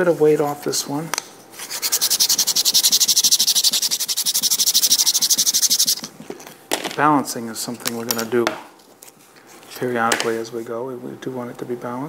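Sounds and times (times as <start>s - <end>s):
sandpaper rasping on wood: 1.6s - 6.1s.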